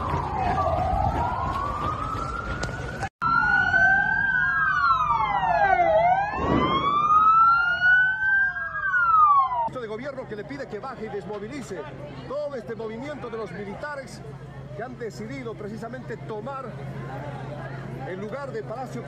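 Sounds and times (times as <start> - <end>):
emergency sirens wailing: 0.0 - 10.1.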